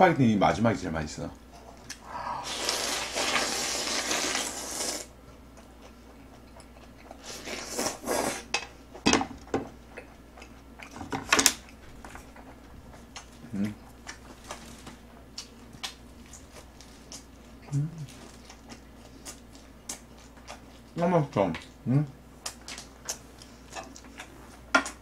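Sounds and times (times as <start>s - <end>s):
person slurping noodles: 2.0s - 5.1s, 7.2s - 8.5s.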